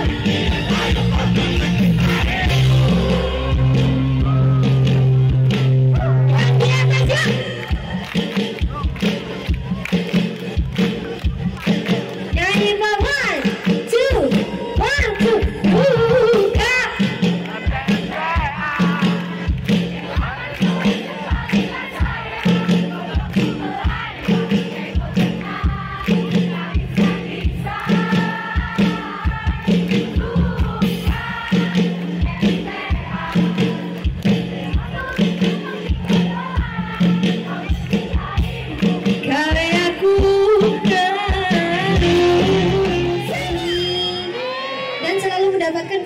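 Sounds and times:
crowd singing along: 0.0s - 6.3s, 14.5s - 45.1s
drum beat: 0.0s - 44.2s
live band music: 0.0s - 46.0s
woman singing with vibrato: 12.4s - 17.2s, 38.4s - 46.0s.

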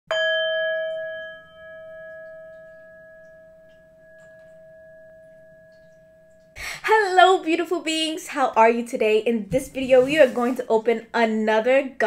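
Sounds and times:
singing bowl ringing: 0.1s - 6.6s.

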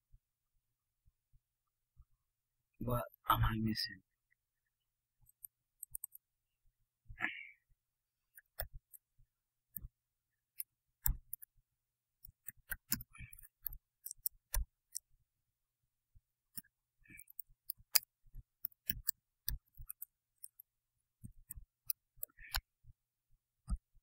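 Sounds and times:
computer keyboard and mouse clicking: 5.2s - 6.2s, 8.3s - 9.1s, 10.6s - 11.5s, 12.2s - 15.1s, 16.6s - 22.7s.

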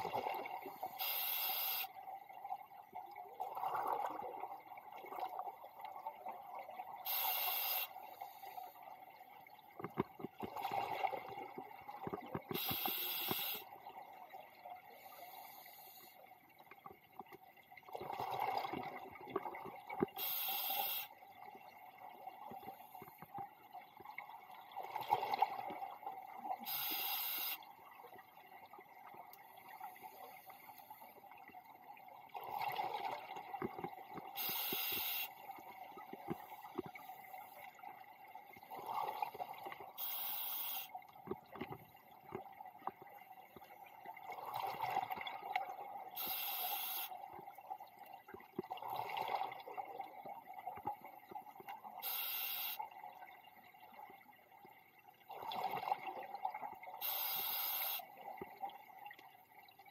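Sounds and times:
regulator hiss on inhale: 0.8s - 1.9s, 7.0s - 8.8s, 12.5s - 13.7s, 14.9s - 16.2s, 20.2s - 21.2s, 26.6s - 27.6s, 34.4s - 35.4s, 40.0s - 41.0s, 46.2s - 47.2s, 52.0s - 52.8s, 57.0s - 58.1s.

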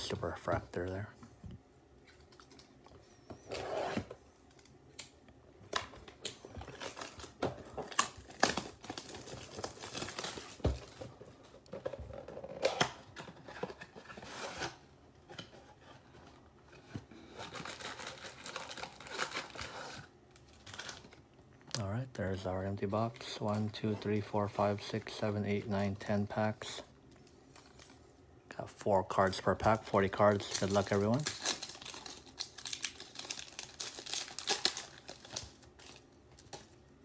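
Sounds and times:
plastic shrink-wrap tearing and crinkling: 6.0s - 11.0s, 17.2s - 21.2s, 29.7s - 36.8s.

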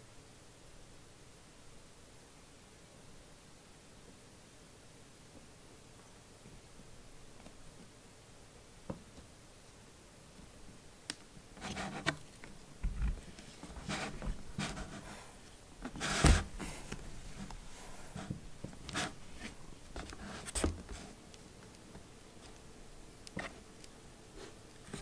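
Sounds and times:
scratching on cardboard box: 13.6s - 21.2s.

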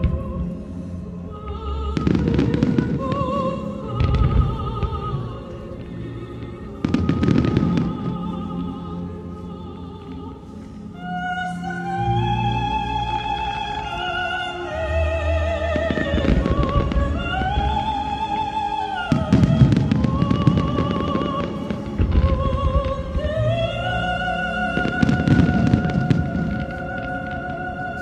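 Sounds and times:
operatic singing with orchestra: 0.0s - 28.0s
fireworks bangs and crackle: 19.1s - 23.1s.

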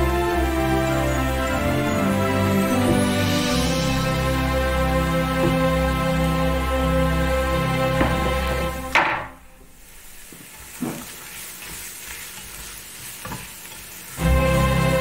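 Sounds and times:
background music: 0.0s - 9.8s, 14.2s - 15.0s
onion sizzling in oil: 0.1s - 6.6s, 9.6s - 15.0s.

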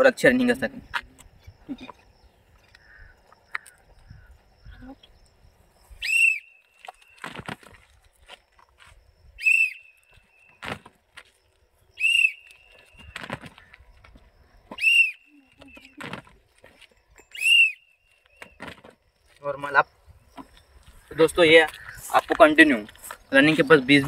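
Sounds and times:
whistle blasts: 6.0s - 6.8s, 9.4s - 10.6s, 12.0s - 13.1s, 14.7s - 16.0s, 17.2s - 18.2s
shoes landing on road: 6.9s - 9.0s, 10.5s - 11.4s, 13.0s - 14.8s, 18.4s - 19.0s.

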